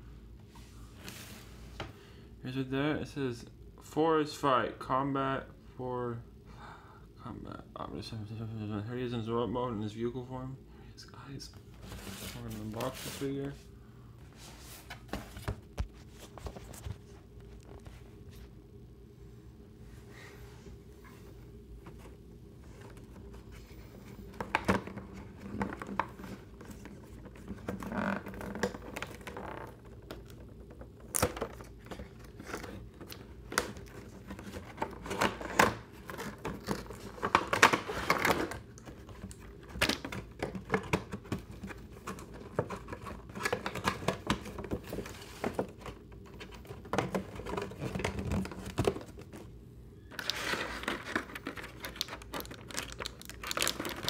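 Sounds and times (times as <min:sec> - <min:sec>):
cardboard and plastic rustling: 0:11.6 - 0:13.6, 0:14.3 - 0:18.5, 0:21.8 - 0:54.0
plastic crinkling: 0:50.1 - 0:54.0.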